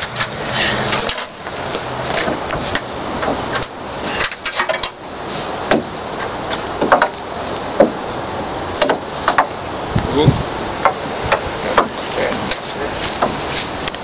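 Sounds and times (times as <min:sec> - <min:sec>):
hammer striking nails into wood: 0:06.8 - 0:07.2.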